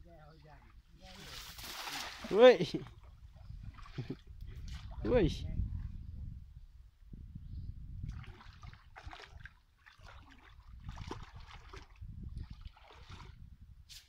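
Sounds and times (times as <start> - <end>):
water splashing and sloshing: 0.4 - 5.4, 8.0 - 13.5.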